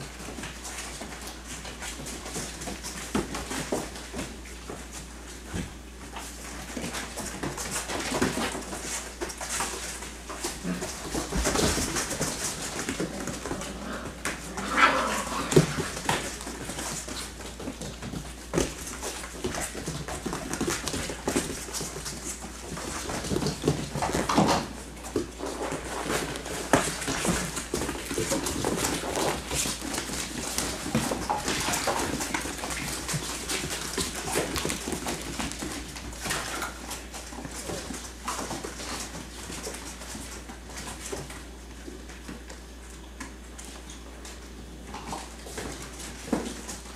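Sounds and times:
paws clicking and scuffling: 0.0 - 46.9
puppies growling and whimpering: 10.5 - 16.6.

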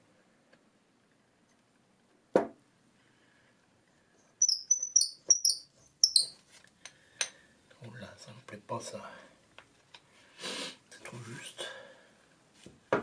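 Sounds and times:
knock: 2.4 - 2.6
metal squeaking on metal: 4.4 - 6.4.

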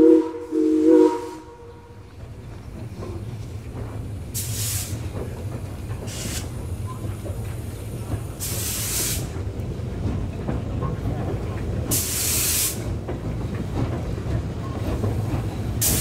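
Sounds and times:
steam locomotive low rumble: 0.0 - 16.0
loud hissing steam blasts: 4.3 - 9.5, 11.9 - 13.0, 14.9 - 16.0.

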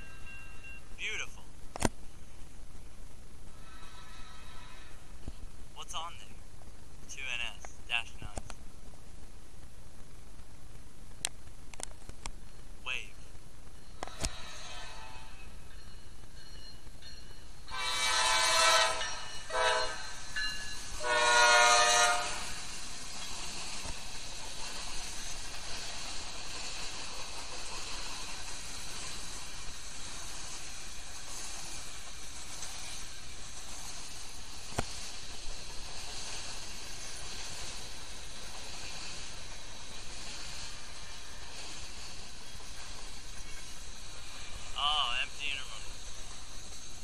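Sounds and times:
freight cars rolling on rails: 2.0 - 47.0
locomotive air horn blasts: 3.6 - 5.0, 17.7 - 20.1, 21.0 - 22.6.

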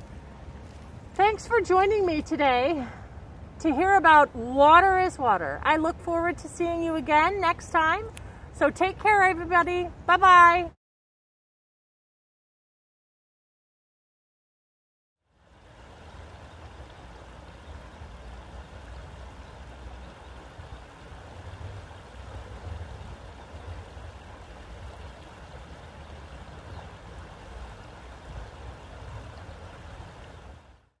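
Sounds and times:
creek water babbling over rocks: 15.4 - 30.9.

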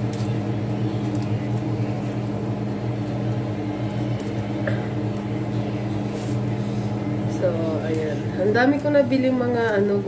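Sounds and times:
leaves snapping: 0.0 - 0.4, 1.0 - 1.7
machine hum: 0.0 - 10.0.

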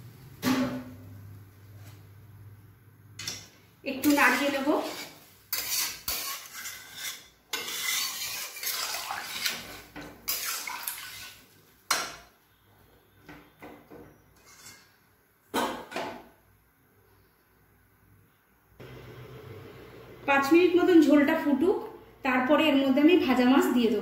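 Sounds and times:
metal spatula scraping pan: 3.2 - 12.1, 14.1 - 15.0.

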